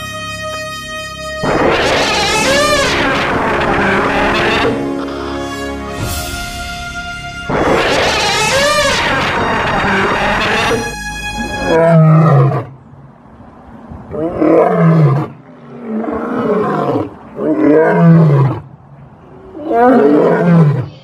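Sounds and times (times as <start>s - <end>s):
dinosaur roars: 1.4s - 5.4s, 7.5s - 10.8s, 14.1s - 18.7s, 19.4s - 21.0s.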